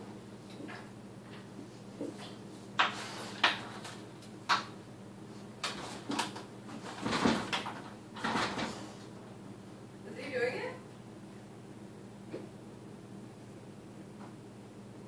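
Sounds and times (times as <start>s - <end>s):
plastic dog door flap rattling: 5.7s - 8.8s.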